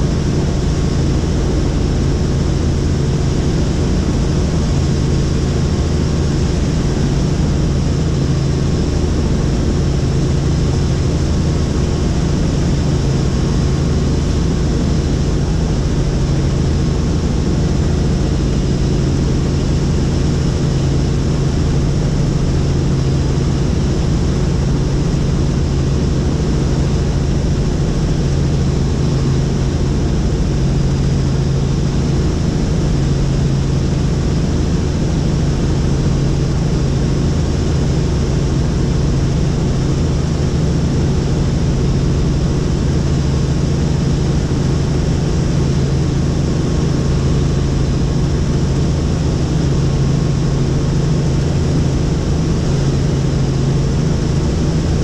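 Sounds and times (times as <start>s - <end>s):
helicopter engine and rotor noise: 0.0s - 55.0s.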